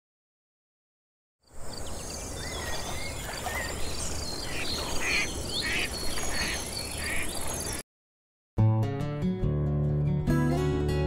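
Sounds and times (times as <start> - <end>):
bird calls and chirps: 1.5 - 7.8.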